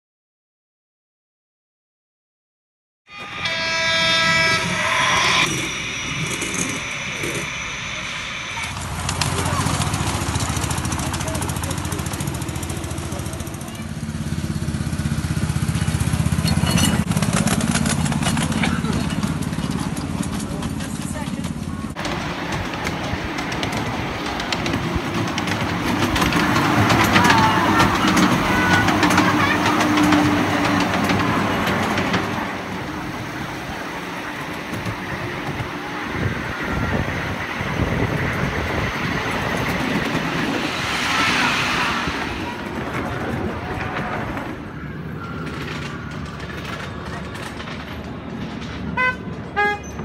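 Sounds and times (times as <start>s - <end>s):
miniature train rumbling and rattling: 3.2s - 50.0s
people's voices: 6.2s - 14.2s, 17.9s - 49.4s.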